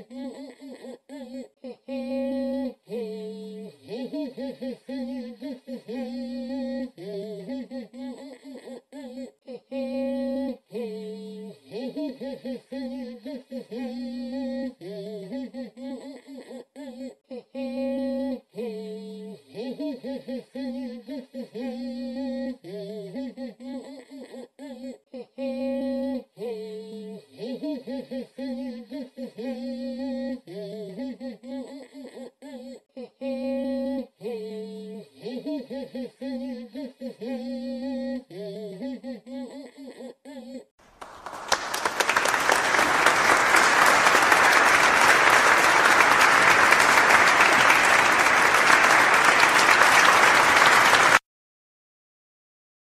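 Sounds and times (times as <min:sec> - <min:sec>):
song with hummed vocal melody: 0:01.6 - 0:08.4, 0:09.4 - 0:16.0.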